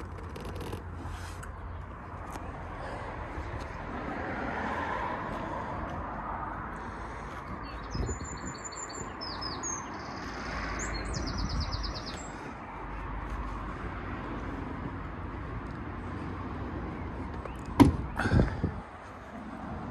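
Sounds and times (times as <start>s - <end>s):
small songbird chirping and trilling: 7.6s - 12.5s.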